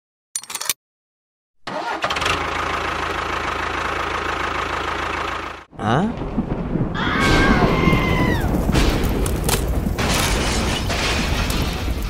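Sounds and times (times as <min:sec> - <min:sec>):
low rumbling boom: 0:06.0 - 0:12.0.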